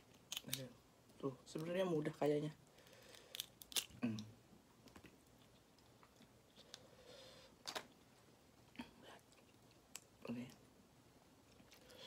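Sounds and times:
shell cracking and snapping: 0.0s - 0.8s, 2.8s - 5.1s.

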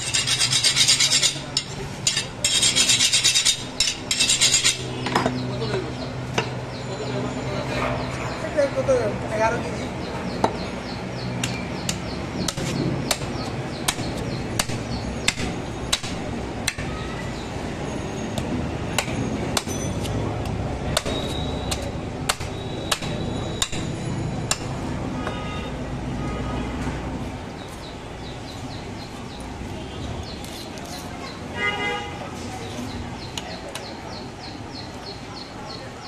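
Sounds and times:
heavy knife chopping on wood block: 11.4s - 16.9s, 18.9s - 20.2s, 20.9s - 23.9s.

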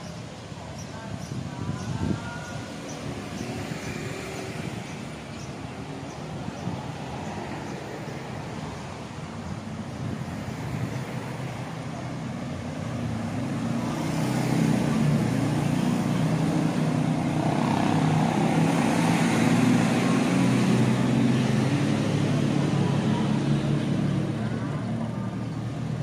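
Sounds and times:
street traffic: 0.0s - 26.0s.

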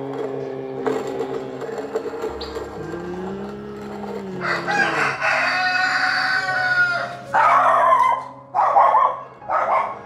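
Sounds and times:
rooster crowing: 4.2s - 8.0s.

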